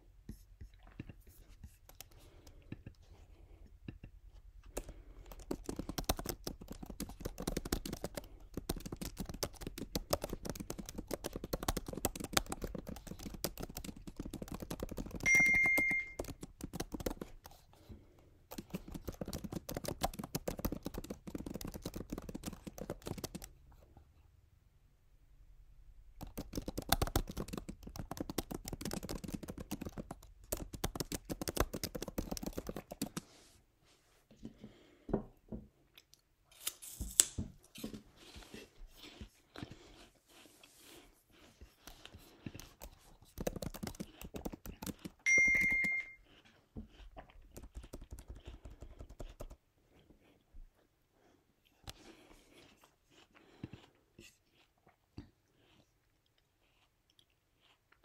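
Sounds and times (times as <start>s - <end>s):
typing on laptop keyboard: 4.7s - 17.6s, 18.5s - 23.6s, 26.2s - 33.2s, 41.9s - 46.2s, 47.5s - 49.6s
short high electronic beep: 15.3s - 16.2s, 45.3s - 46.2s.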